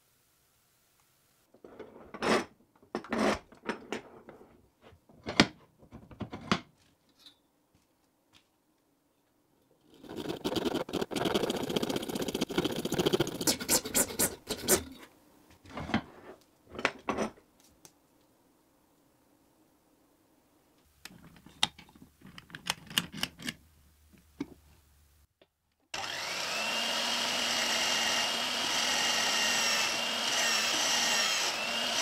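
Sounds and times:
hand tool scraping hard material: 9.9s - 15.1s.

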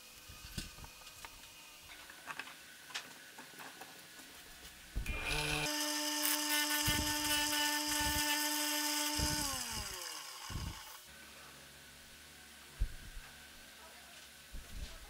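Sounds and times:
electric motor humming: 5.0s - 11.1s
wood block sanding hiss: 5.6s - 11.0s.

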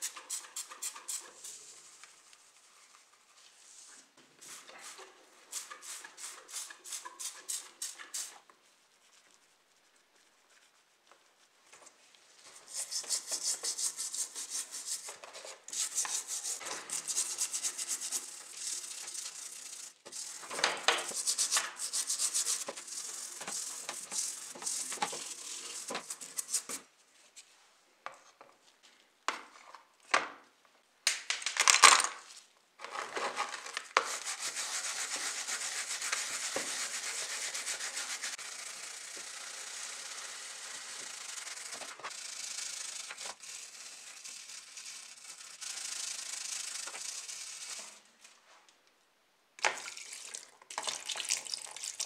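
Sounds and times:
brush scrubbing metal: 12.5s - 26.8s, 34.0s - 48.0s.

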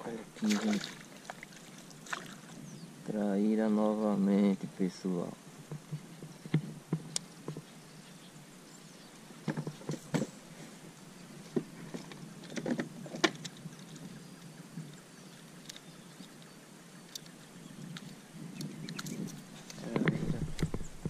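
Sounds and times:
faint steady background noise: 0.0s - 21.0s
sharp clicks and knocks: 18.9s - 21.0s.

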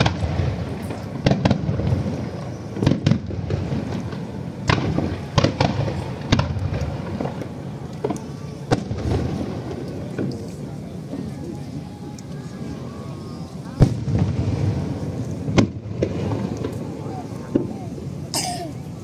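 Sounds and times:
fireworks bangs: 0.0s - 11.5s, 13.6s - 18.3s
continuous low rumble: 0.0s - 19.0s.

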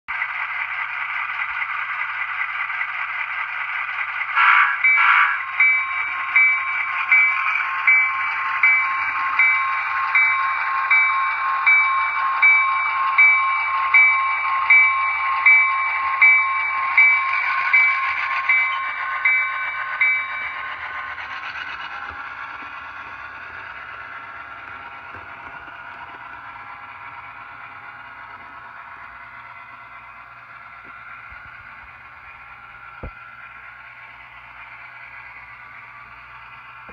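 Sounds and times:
model train engine sound: 0.1s - 36.9s
horn blasts: 4.4s - 5.5s
bell ringing: 4.8s - 20.9s.

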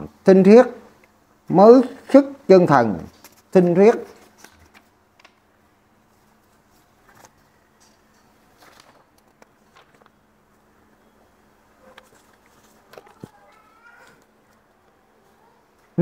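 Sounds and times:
paper sheets rustling: 6.0s - 7.8s, 8.4s - 10.2s, 11.8s - 14.3s.

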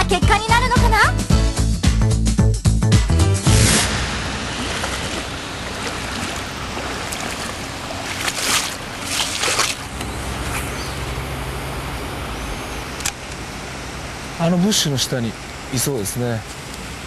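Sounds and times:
river water flowing: 3.7s - 17.0s.

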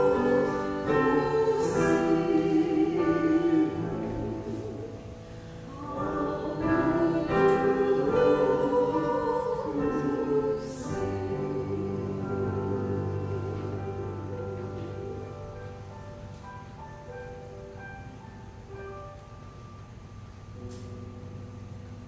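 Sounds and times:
small choir singing a hymn: 0.0s - 15.6s
piano accompaniment: 0.0s - 22.0s.

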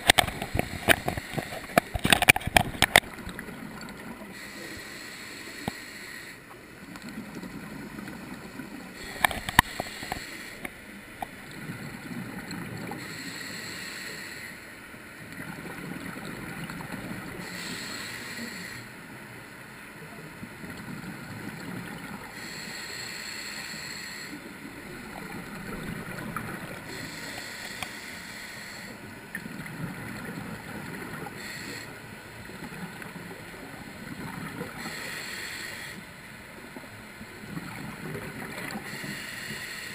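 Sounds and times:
regulator inhale hiss: 4.3s - 6.6s, 8.9s - 10.8s, 12.9s - 14.8s, 17.3s - 19.0s, 22.3s - 24.5s, 26.7s - 29.2s, 31.2s - 32.1s, 34.6s - 36.2s, 38.6s - 39.9s
gurgle of exhaled bubbles: 24.7s - 27.0s.

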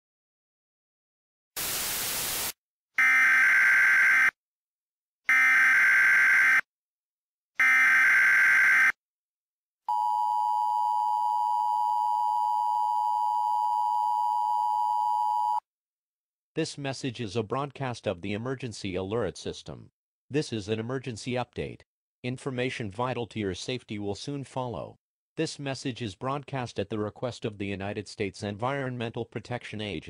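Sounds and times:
static hiss: 1.6s - 2.6s.

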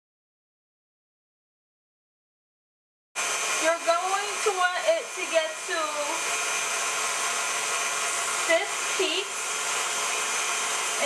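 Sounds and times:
stand mixer whirring: 3.2s - 11.0s
person talking: 3.6s - 6.2s, 8.4s - 9.4s.

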